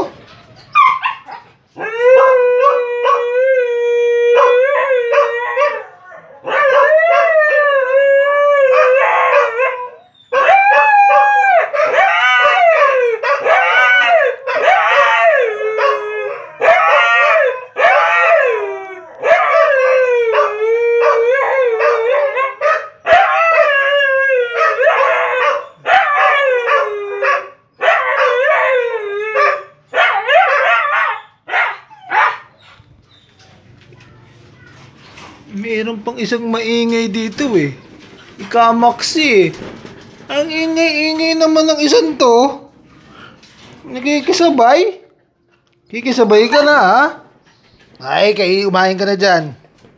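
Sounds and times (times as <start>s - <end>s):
dog howling: 0.7s - 32.6s.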